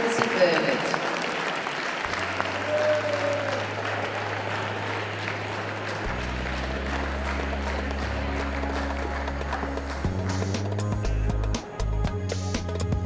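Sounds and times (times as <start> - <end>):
audience applauding: 0.0 - 12.2
low bass background music: 3.6 - 13.0.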